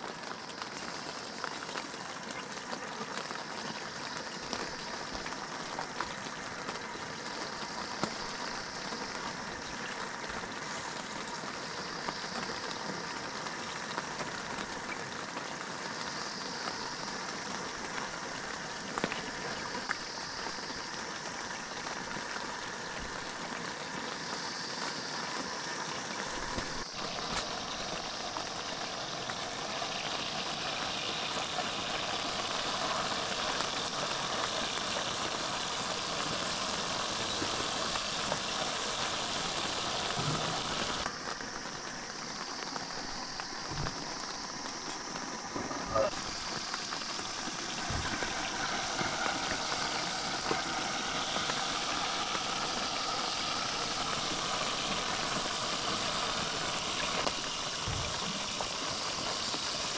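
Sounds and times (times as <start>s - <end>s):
steady rain patter: 0.0s - 59.9s.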